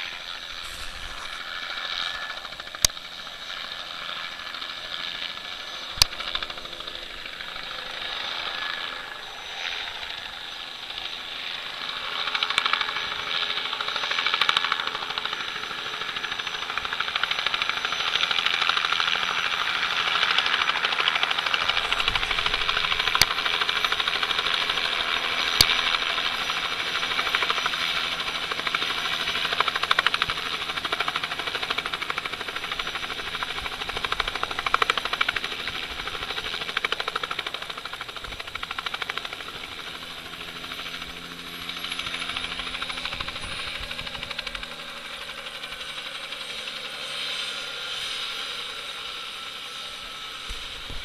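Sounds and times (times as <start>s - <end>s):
helicopter rotor chop and turbine whine: 0.0s - 51.0s.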